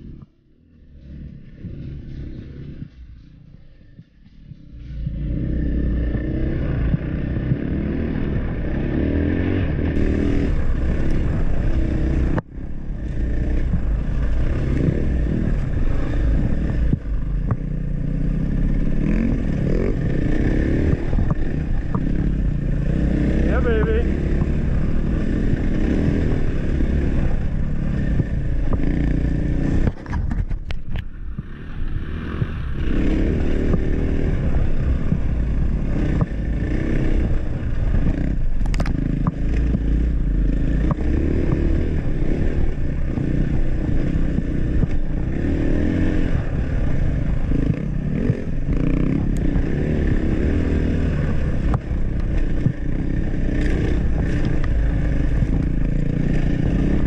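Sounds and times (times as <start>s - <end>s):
bike rattling and scraping: 0.0s - 57.0s
dirt bike engine revving: 0.0s - 57.0s.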